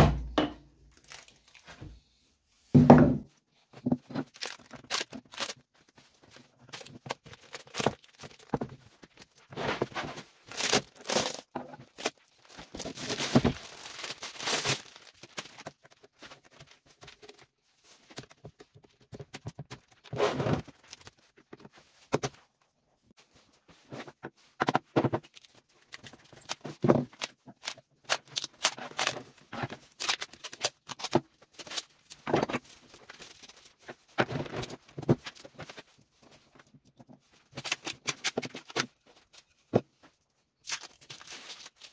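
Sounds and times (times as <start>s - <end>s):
tearing noises: 1.0s - 1.6s, 4.2s - 5.6s, 10.4s - 15.8s, 25.2s - 32.2s, 40.6s - 41.9s
resin and board cracking: 4.1s - 5.6s, 6.6s - 8.8s, 10.5s - 16.0s, 25.2s - 32.7s.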